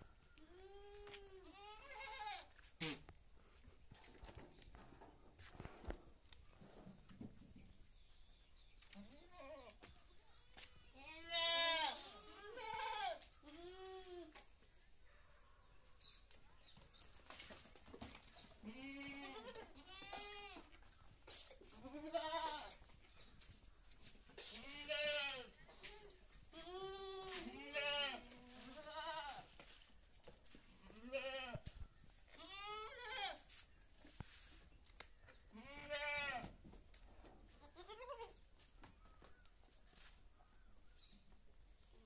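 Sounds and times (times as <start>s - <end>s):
goats bleating: 11.0s - 14.1s, 18.6s - 20.7s, 21.7s - 22.7s, 26.6s - 29.4s.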